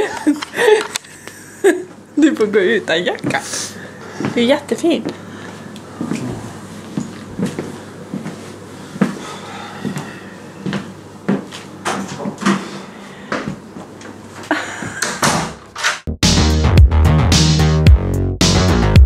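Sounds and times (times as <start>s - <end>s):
footsteps on wooden floor: 4.2s - 12.7s
loud guitar and bass music: 16.1s - 19.0s.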